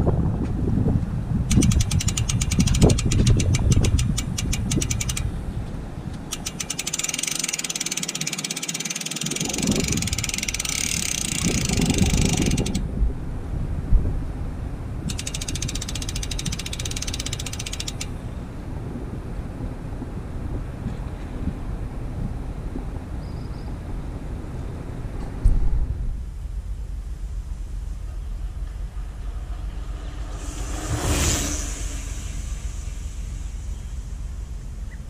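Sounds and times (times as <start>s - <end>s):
bicycle hub ratcheting: 1.5s - 5.4s, 6.2s - 12.8s, 15.1s - 18.2s.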